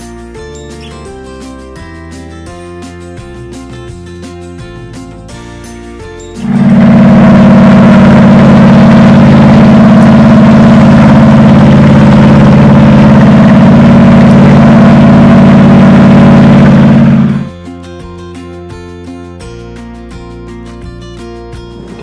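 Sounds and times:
boat engine running: 0:06.2 - 0:17.6.

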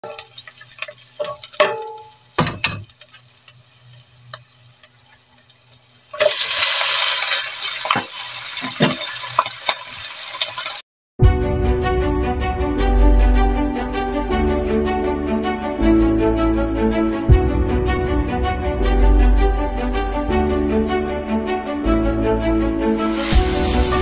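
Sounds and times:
meat sizzling in hot oil: 0:00.0 - 0:10.8
wings knocking against pot: 0:01.2 - 0:03.0.

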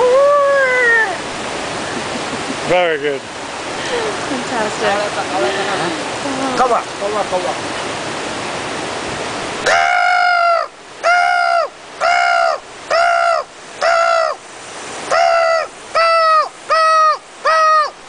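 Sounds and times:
man imitating crow caws: 0:09.6 - 0:14.4, 0:15.1 - 0:18.0.

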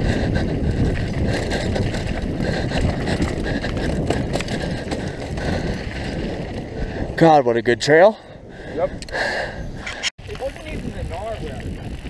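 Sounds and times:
bike clicks and rattles: 0:00.0 - 0:07.1, 0:09.8 - 0:12.0
tyre and wind rumble: 0:00.0 - 0:12.0.

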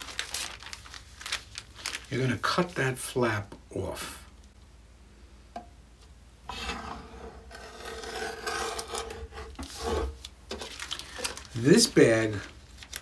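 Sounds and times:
cutter blade scraping plastic bag: 0:06.5 - 0:12.2.

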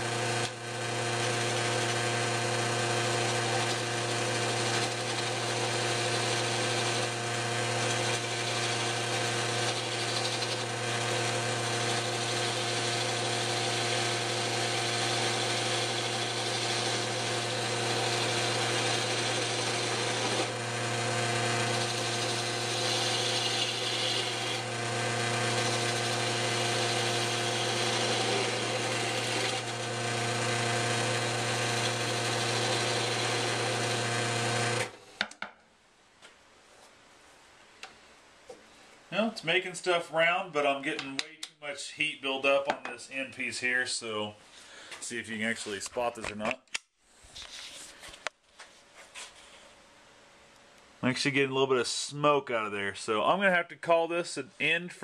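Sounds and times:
wood lathe motor humming: 0:00.0 - 0:35.2
turning tool cutting wood: 0:00.0 - 0:35.3.

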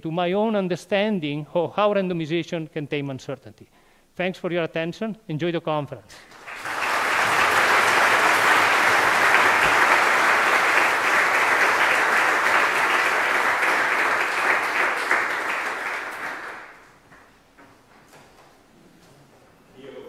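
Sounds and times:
audience applauding: 0:06.2 - 0:17.0.

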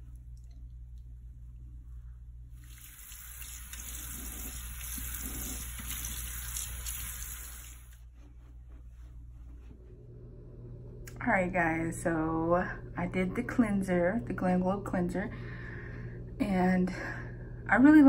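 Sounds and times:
water splashing: 0:02.6 - 0:07.9
sink tap running: 0:02.6 - 0:08.0.

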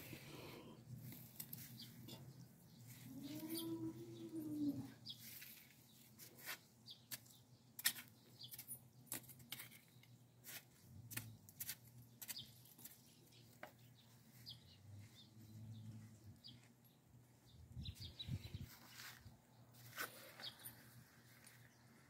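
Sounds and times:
cow mooing: 0:03.1 - 0:04.9
gloved hands scratching soil: 0:05.0 - 0:07.4.

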